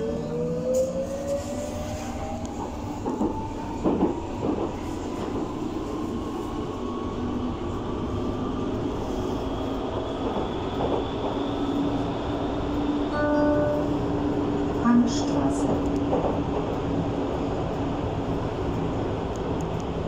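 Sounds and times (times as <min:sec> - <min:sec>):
train rumble: 0:00.0 - 0:20.0.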